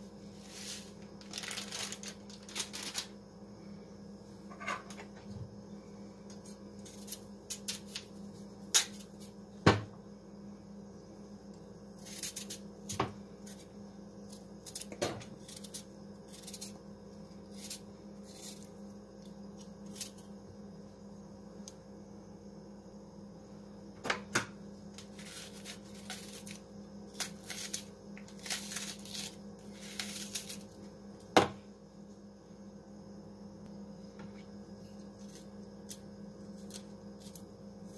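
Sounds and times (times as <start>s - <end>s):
steady low hum: 0.0s - 37.9s
knife slicing onion: 25.0s - 30.7s.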